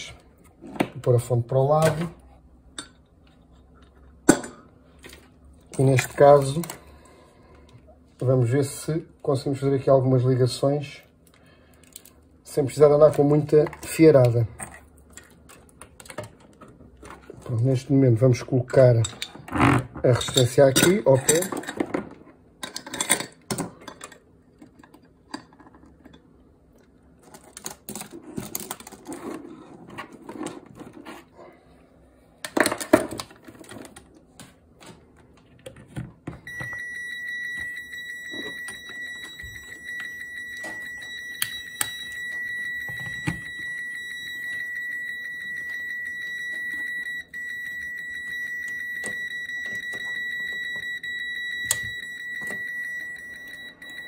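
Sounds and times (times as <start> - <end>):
multimeter continuous beep: 36.4 - 54.0.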